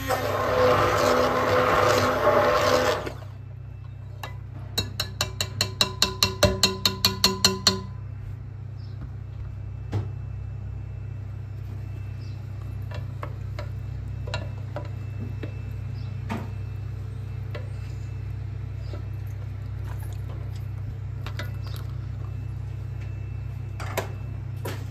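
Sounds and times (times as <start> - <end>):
steady low hum: 0.0 - 24.9
wooden spoon knocking in pot: 4.8 - 8.0.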